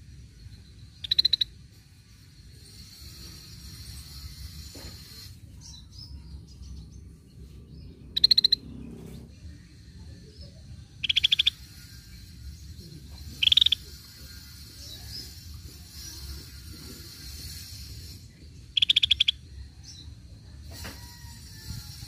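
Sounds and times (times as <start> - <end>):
bird rattling calls: 0.9 - 5.5, 8.0 - 9.2, 11.0 - 19.5.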